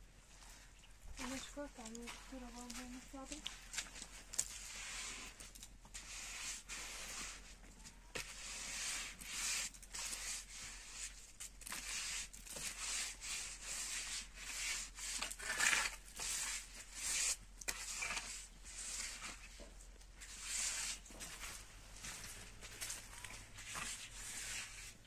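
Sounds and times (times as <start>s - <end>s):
trowel scraping mortar: 1.2s - 25.0s.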